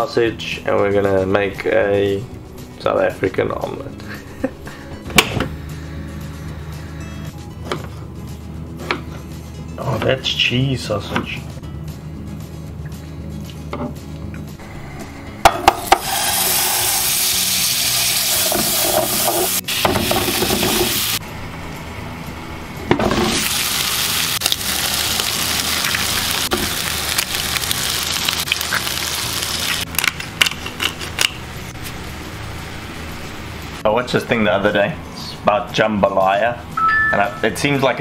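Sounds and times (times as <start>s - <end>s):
sausage sizzling in frying pan: 15.7s - 21.2s, 23.2s - 30.1s.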